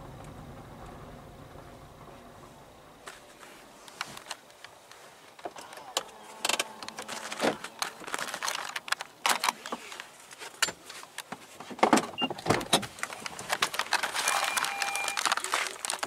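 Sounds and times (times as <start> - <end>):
person climbing out of car: 1.6 - 16.0
car door opening: 11.8 - 13.0.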